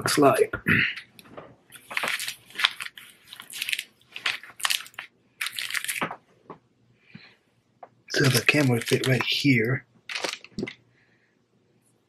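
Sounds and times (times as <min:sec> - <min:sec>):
plastic wrapping crinkling: 0:01.7 - 0:06.2, 0:08.1 - 0:10.8.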